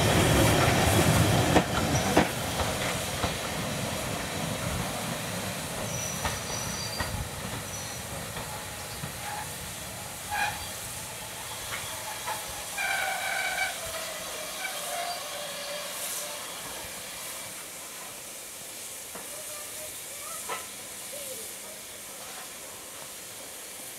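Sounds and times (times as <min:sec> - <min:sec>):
steam hissing: 0:00.0 - 0:23.9
high-pitched squeals: 0:10.3 - 0:16.5.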